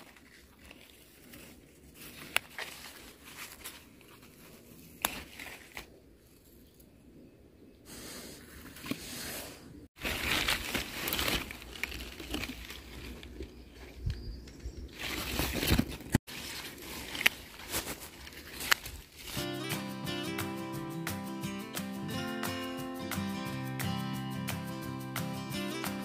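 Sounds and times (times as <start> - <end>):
leaves rustling and crinkling: 0.0 - 7.1, 7.9 - 19.9.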